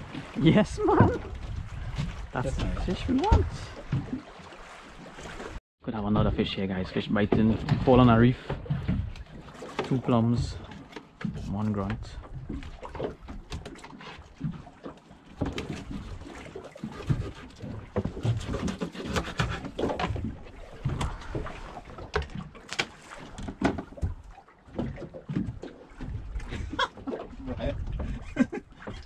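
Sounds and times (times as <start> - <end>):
wind rumble: 0.0 - 3.8, 20.2 - 22.2
water slapping boat hull: 0.0 - 29.0.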